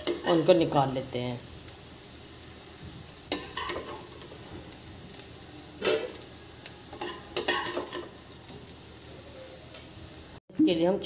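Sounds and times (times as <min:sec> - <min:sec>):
steel spoon scraping a pan: 0:00.0 - 0:00.7, 0:03.2 - 0:04.9, 0:05.8 - 0:10.0
oil sizzling: 0:00.0 - 0:10.4.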